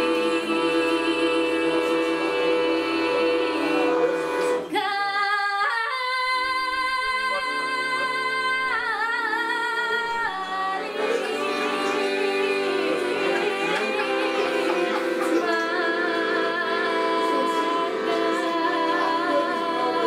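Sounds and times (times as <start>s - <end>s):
woman singing folk song: 0.0s - 4.1s, 4.7s - 11.0s, 15.2s - 20.0s
piano accordion: 0.0s - 4.8s, 6.6s - 20.0s.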